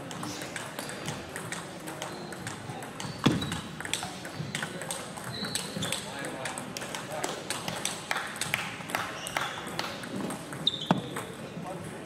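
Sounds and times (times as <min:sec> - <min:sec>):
table tennis ball clicking: 0:00.0 - 0:11.3
short high squeaks: 0:10.6 - 0:11.1.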